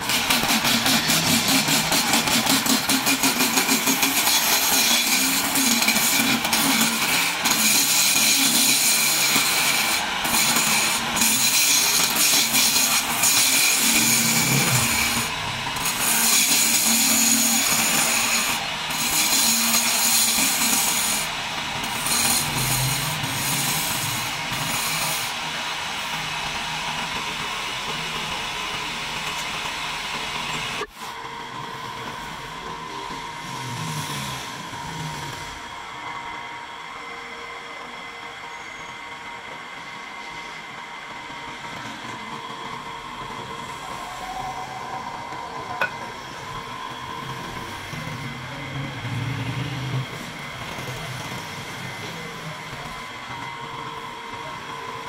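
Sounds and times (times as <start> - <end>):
chisel scraping spinning wood: 0.0 - 25.2
wood lathe running: 0.0 - 55.0.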